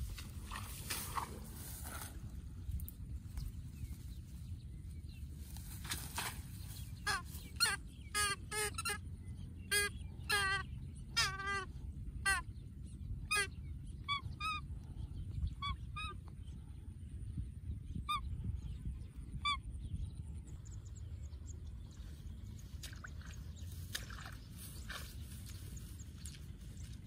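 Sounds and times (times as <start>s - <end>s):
steady low rumble: 0.0s - 27.0s
birds honking calls: 6.9s - 12.6s.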